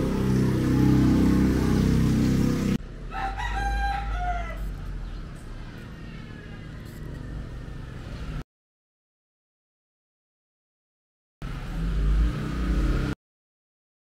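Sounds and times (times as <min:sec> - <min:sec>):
loud low-pitched sound: 0:00.0 - 0:02.8
faint outdoor background: 0:00.0 - 0:08.4, 0:11.4 - 0:13.2
rooster crowing: 0:03.1 - 0:04.8.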